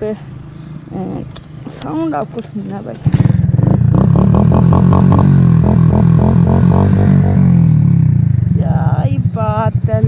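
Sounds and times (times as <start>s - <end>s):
motorcycle engine under throttle: 2.8s - 10.0s.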